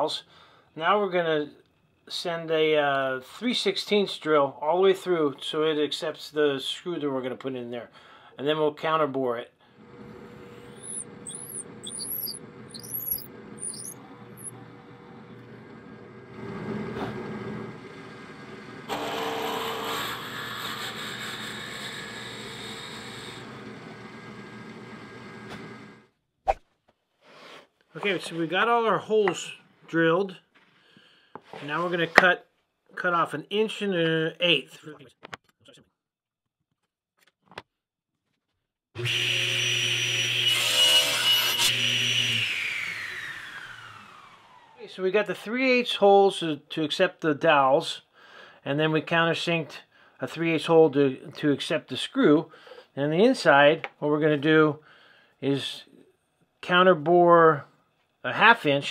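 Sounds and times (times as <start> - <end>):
drill press boring into wood: 9.8 - 20.3
table saw motor humming: 9.8 - 26.0, 39.0 - 44.8
saw blade cutting wood: 10.1 - 14.7, 18.9 - 23.4, 39.0 - 44.0.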